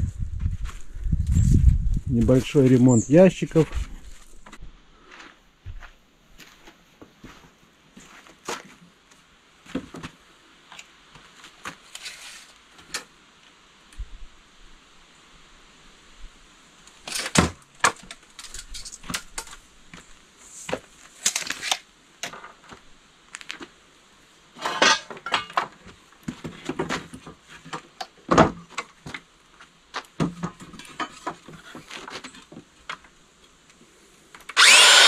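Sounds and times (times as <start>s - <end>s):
wooden boards knocking and scraping: 24.6s - 29.3s.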